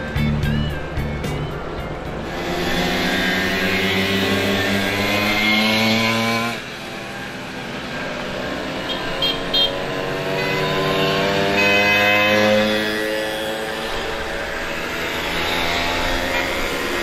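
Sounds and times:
moped engines running: 0.0s - 17.0s.

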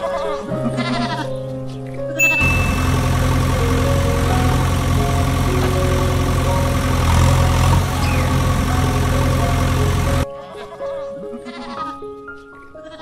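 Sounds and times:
truck engine rumbling: 2.2s - 10.2s.

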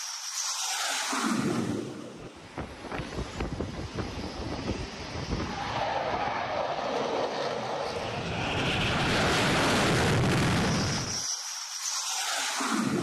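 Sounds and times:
fighter jet engine passing: 0.6s - 11.2s.

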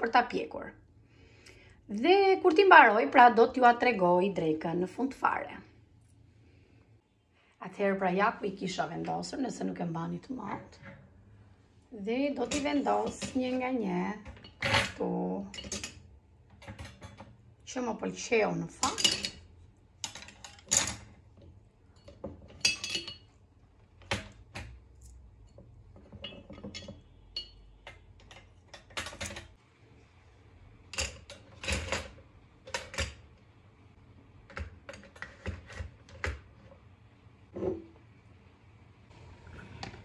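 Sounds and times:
kitchen utensils clattering: 12.4s - 13.6s, 14.2s - 16.0s, 16.6s - 17.3s, 18.8s - 21.2s, 21.9s - 23.4s, 25.5s - 29.6s, 30.9s - 33.3s.

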